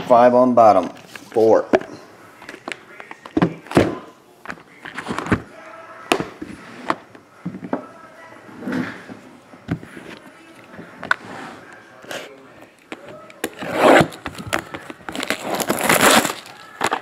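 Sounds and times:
plastic wrap rustling: 13.8s - 17.0s.

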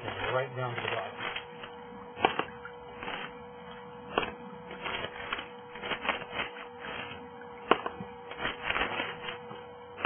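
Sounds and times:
trowel scraping against rock: 4.2s - 9.4s.

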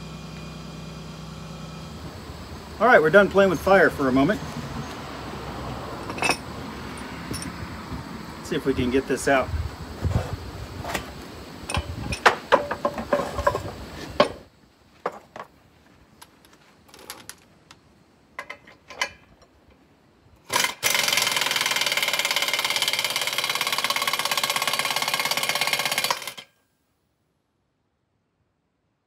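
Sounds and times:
metal tools clanking: 6.0s - 7.6s, 11.7s - 14.4s, 18.4s - 19.6s
pneumatic air hammer rattling: 10.8s - 14.5s, 20.4s - 26.5s.

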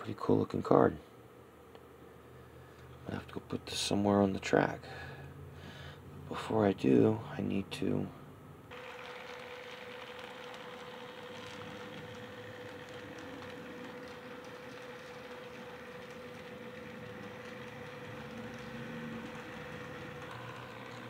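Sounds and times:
model locomotive mechanical whir: 8.7s - 21.0s.

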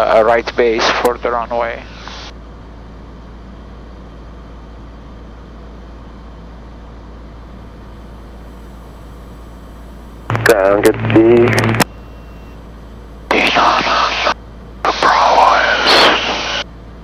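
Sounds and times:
aircraft piston engine: 0.6s - 2.4s, 7.6s - 16.6s
airflow: 13.3s - 16.6s.

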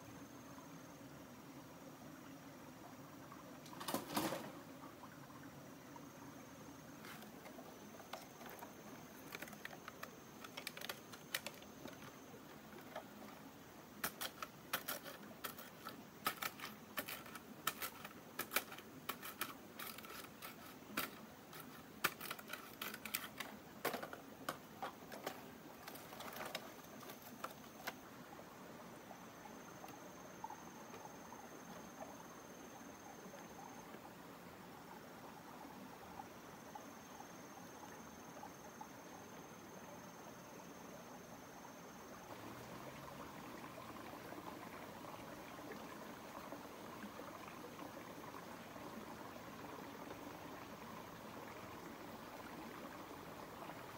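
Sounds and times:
high insect trill: 5.8s - 33.9s.

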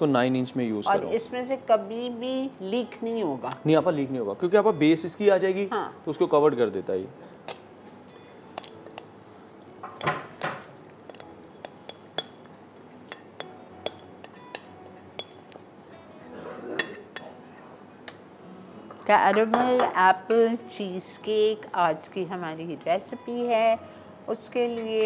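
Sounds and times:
spoon clinking on metal: 8.6s - 9.1s, 10.0s - 15.6s.

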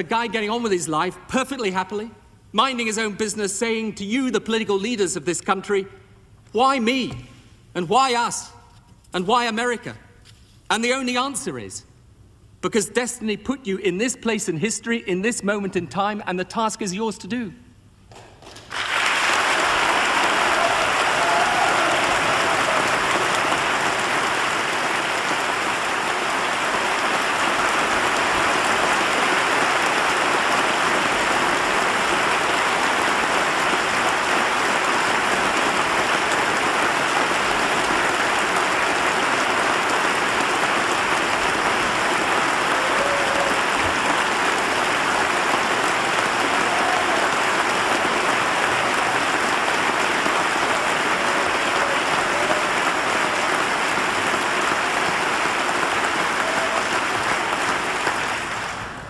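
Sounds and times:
large crowd applauding: 18.4s - 59.0s.

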